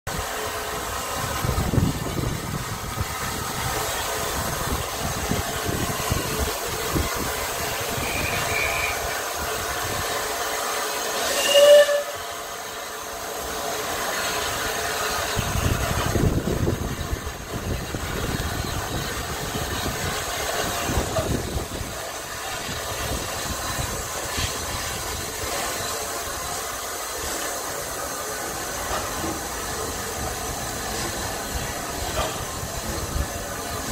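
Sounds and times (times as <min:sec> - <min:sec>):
steam hiss and train noise: 0:00.1 - 0:33.9
steam train whistle: 0:07.8 - 0:09.4, 0:10.8 - 0:12.7.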